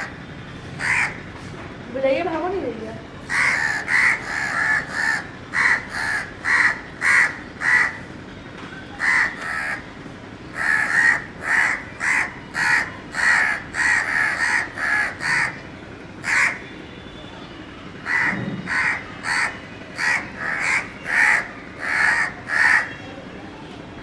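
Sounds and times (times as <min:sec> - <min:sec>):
crows cawing: 0:00.8 - 0:01.3, 0:03.3 - 0:08.1, 0:09.0 - 0:09.9, 0:10.5 - 0:15.6, 0:16.2 - 0:16.7, 0:18.0 - 0:23.0.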